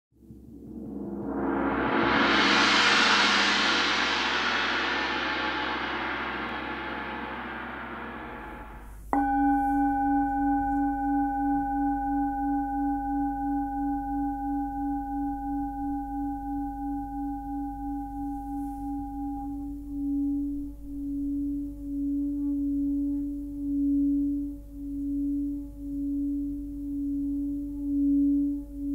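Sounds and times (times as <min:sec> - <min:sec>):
noisy metallic wash: 0:00.3 - 0:12.8
singing bowl ringing: 0:06.5 - 0:28.9.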